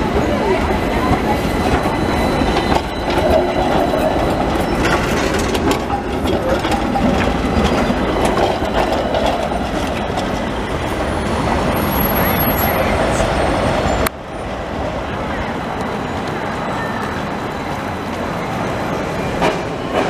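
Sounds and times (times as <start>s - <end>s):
wheels clicking over rail joints: 0.0s - 14.2s
tram wheels rumbling on track: 0.0s - 20.0s.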